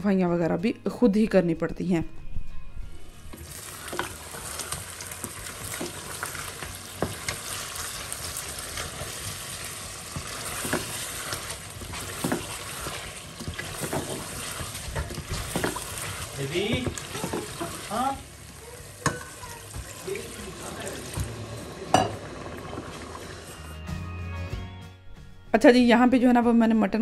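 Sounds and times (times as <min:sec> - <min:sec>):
food sizzling in a pot: 0:03.1 - 0:23.8.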